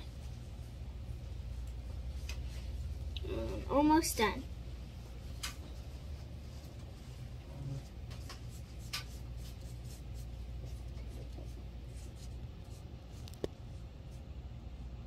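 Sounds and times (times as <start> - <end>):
low room hum: 0.0 - 15.0
paintbrush scratching on paper: 6.1 - 13.4.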